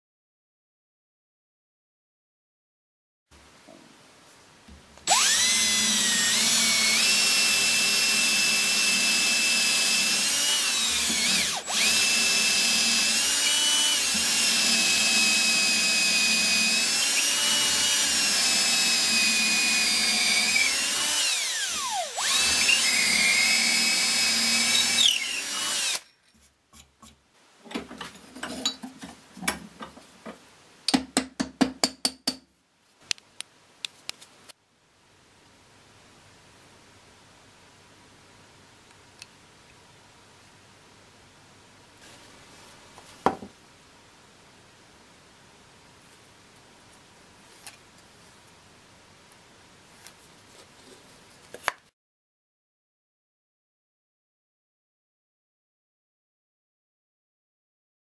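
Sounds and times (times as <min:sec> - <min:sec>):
power drill boring into wood: 0:05.1 - 0:26.1.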